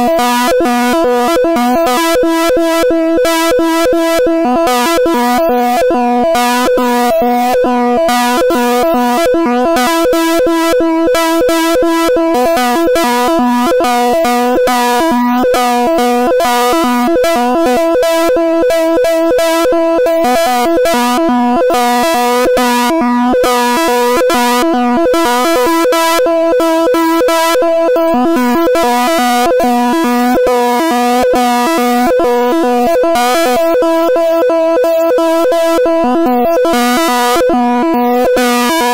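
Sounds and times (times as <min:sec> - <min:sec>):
buzzing electronic chord: 0:00.0 - 0:38.9
fast crackle: 0:31.6 - 0:38.9.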